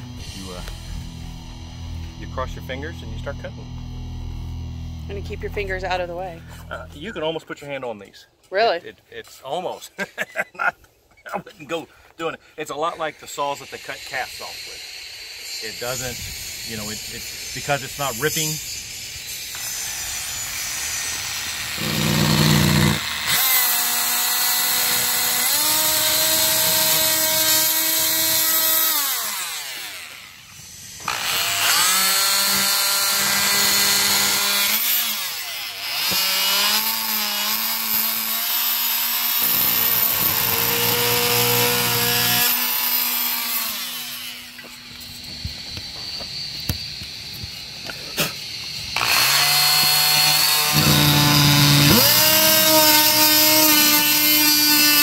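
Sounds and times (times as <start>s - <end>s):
oscillating multi-tool cutting: 12.7s - 55.0s.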